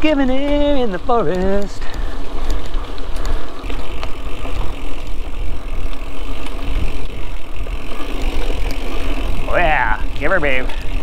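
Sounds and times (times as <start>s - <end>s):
bike clicks and rattles: 0.0s - 11.0s
tyres rumbling on dirt: 0.0s - 11.0s.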